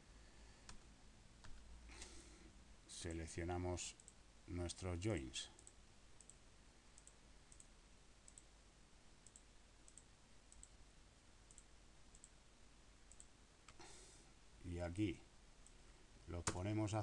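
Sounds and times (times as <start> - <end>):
computer mouse clicks: 5.6 - 6.4, 7.0 - 8.5, 9.2 - 10.8, 11.5 - 12.4, 13.1 - 13.8.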